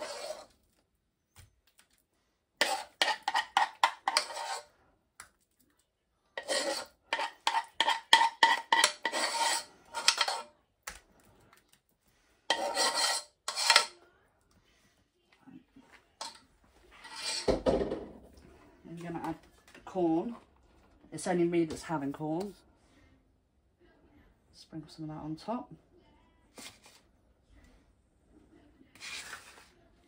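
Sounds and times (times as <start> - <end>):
spoon scraping saucepan: 0.0 - 0.6, 2.6 - 4.7, 6.4 - 10.6, 12.5 - 14.0, 16.2 - 17.6.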